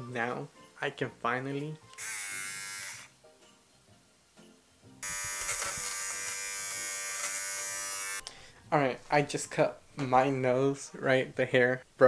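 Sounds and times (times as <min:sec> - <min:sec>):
nose-hair trimmer buzzing: 0:01.9 - 0:03.1, 0:05.0 - 0:08.2.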